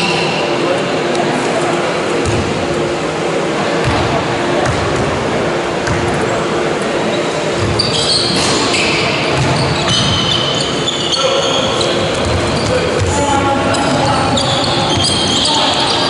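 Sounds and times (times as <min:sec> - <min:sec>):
voices echoing: 0:00.0 - 0:16.0
basketball bouncing: 0:03.8 - 0:05.1
sneakers squeaking on floor: 0:07.1 - 0:16.0.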